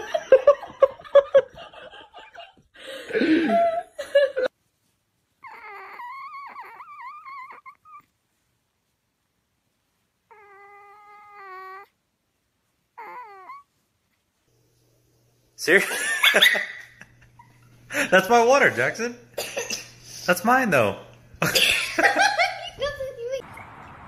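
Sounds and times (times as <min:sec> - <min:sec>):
kitten mewing and whimpering: 0:05.4 - 0:08.1, 0:10.3 - 0:12.0, 0:13.0 - 0:13.8.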